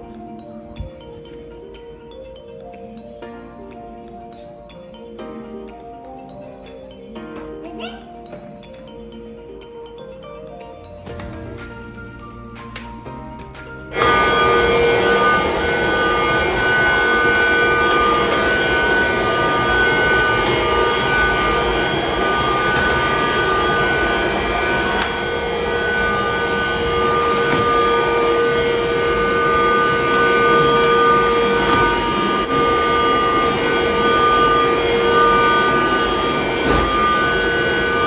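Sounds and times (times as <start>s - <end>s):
stick vacuum cleaner running: 13.8s - 38.0s.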